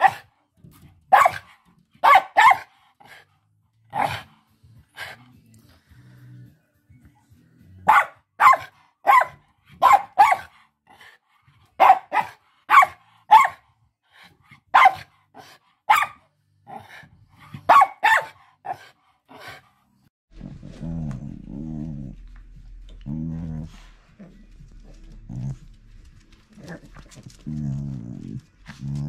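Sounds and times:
small dog barking: 0:00.0 - 0:00.2, 0:01.1 - 0:02.7, 0:03.9 - 0:04.3, 0:07.8 - 0:10.5, 0:11.8 - 0:13.6, 0:14.7 - 0:15.1, 0:15.9 - 0:16.2, 0:17.6 - 0:18.8.

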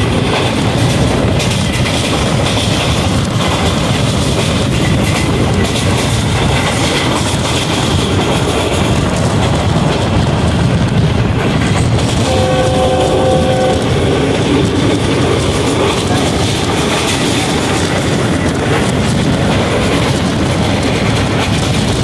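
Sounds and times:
train wheels rumbling on track: 0:00.0 - 0:22.0
train horn: 0:12.2 - 0:14.4.

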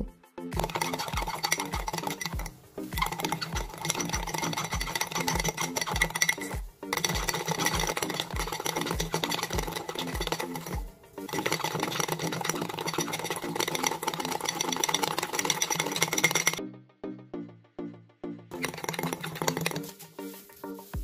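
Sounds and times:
background music with beat: 0:00.0 - 0:21.0
spoon clicking and scraping in mug: 0:00.6 - 0:16.6, 0:18.5 - 0:20.3.

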